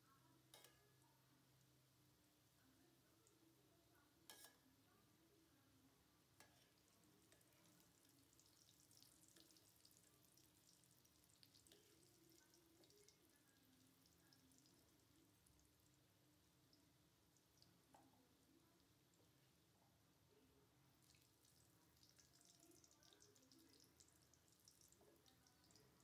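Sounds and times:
oil sizzling and crackling: 0:06.2 - 0:19.5, 0:20.9 - 0:26.0.

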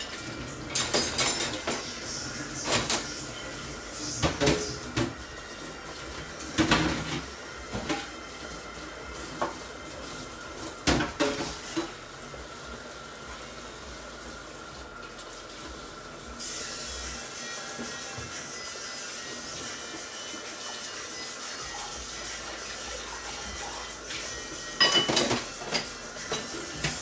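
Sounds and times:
pots and lids clanking: 0:00.0 - 0:05.2, 0:06.4 - 0:08.2, 0:10.8 - 0:12.0, 0:24.7 - 0:27.0
pans hissing on hob: 0:00.0 - 0:27.0.

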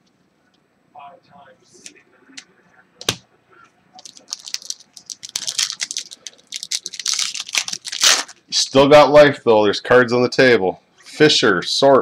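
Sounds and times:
foil wrapper crinkling: 0:04.0 - 0:08.4.

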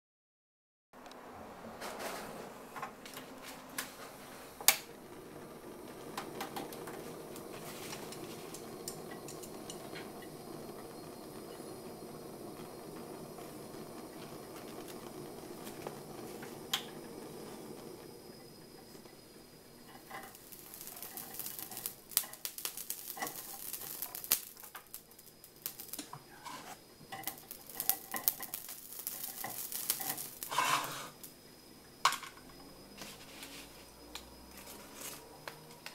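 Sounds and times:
gas burner flame rushing: 0:01.0 - 0:35.9
stove igniter clicks: 0:04.6 - 0:04.9, 0:06.1 - 0:11.7, 0:14.0 - 0:17.2, 0:19.9 - 0:26.2, 0:27.1 - 0:30.6.

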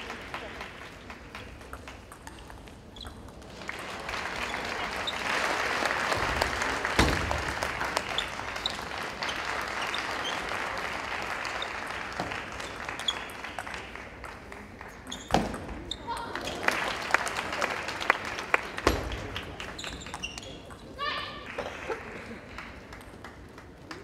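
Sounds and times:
audience applauding: 0:00.0 - 0:01.7, 0:03.6 - 0:15.1, 0:16.4 - 0:19.8.

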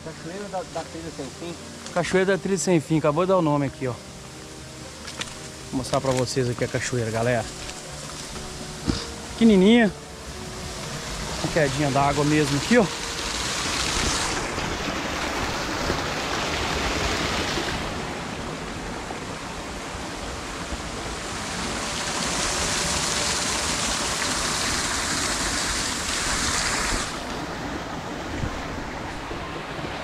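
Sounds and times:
waterfall rushing: 0:00.0 - 0:30.0.

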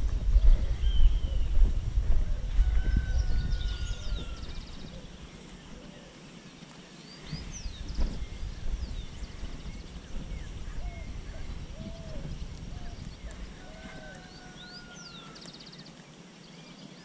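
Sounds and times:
low rumble: 0:00.0 - 0:05.8
small birds chirping: 0:00.0 - 0:17.0.

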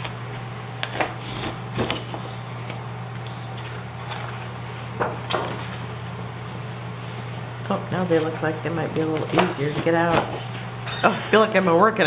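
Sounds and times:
steady low hum: 0:00.0 - 0:12.0
paper rustling: 0:03.2 - 0:08.4.

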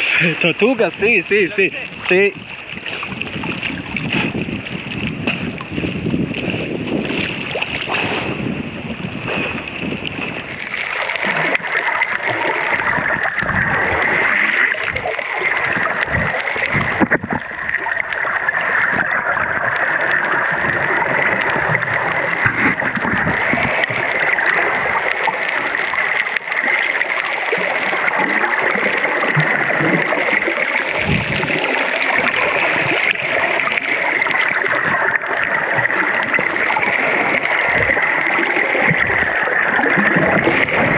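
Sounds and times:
muffled underwater rushing: 0:00.0 - 0:40.9
underwater gurgles: 0:00.0 - 0:40.9
water sloshing and splashing: 0:00.0 - 0:40.9.

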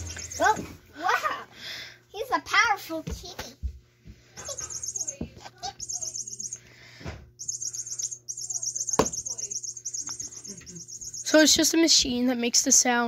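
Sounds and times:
toy chirping trills: 0:00.0 - 0:00.7, 0:04.4 - 0:06.8, 0:07.4 - 0:11.8.

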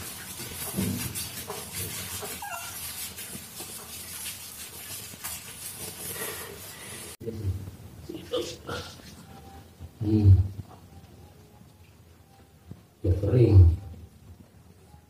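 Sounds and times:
rubbing of wet fur: 0:00.0 - 0:07.2.

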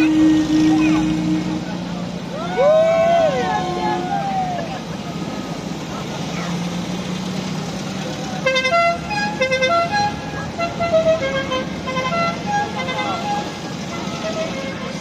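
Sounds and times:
musical car horn tune: 0:00.0 - 0:02.1, 0:08.4 - 0:15.0
car engines passing by: 0:00.0 - 0:15.0.

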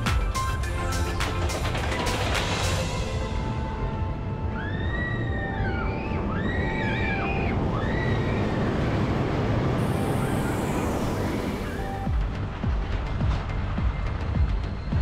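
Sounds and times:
roller coaster rumbling on track: 0:00.0 - 0:15.0
high squealing whines: 0:03.3 - 0:12.1.

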